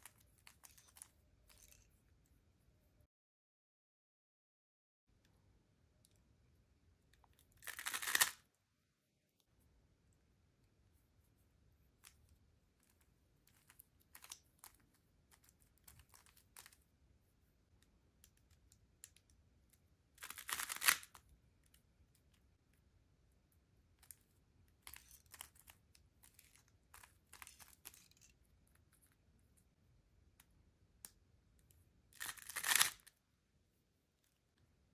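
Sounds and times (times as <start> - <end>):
puzzle cube clicking: 7.6 - 8.4, 20.2 - 21.2, 32.2 - 33.0.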